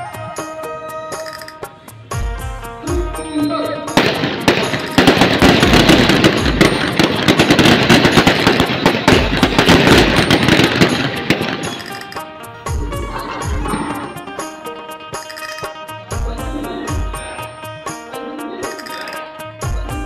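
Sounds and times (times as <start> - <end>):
band music: 0.0 - 20.0
rifles firing rapid blank shots: 4.0 - 12.2.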